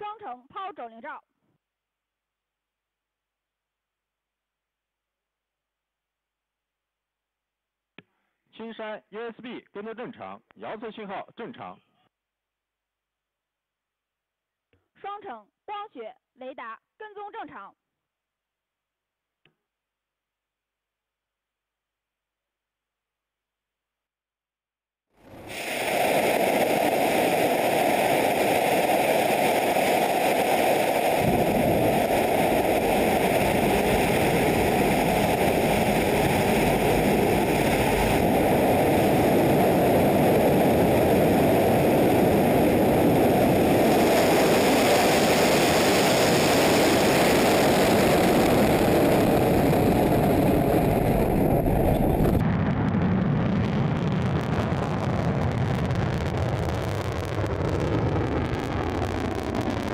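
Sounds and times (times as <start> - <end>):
rocket engines rumbling: 25.3 - 59.9.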